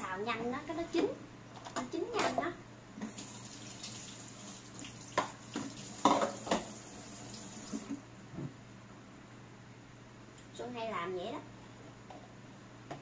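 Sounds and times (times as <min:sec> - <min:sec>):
kitchen tap running into sink: 0:03.0 - 0:08.0
dishes clinking and knocking: 0:05.2 - 0:06.7.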